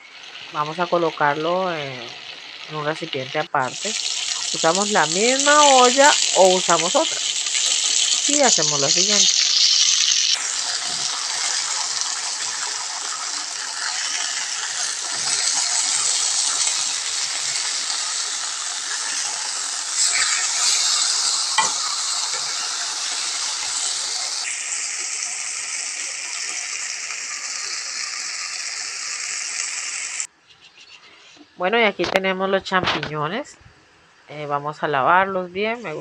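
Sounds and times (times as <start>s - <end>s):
chicken sizzling in a frying pan: 0.0s - 30.3s
metal spoon scraping a pan: 19.9s - 24.2s.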